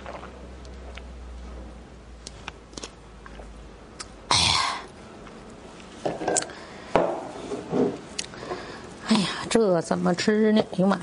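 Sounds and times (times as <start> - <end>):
person sipping from a cup: 0.0 - 0.4.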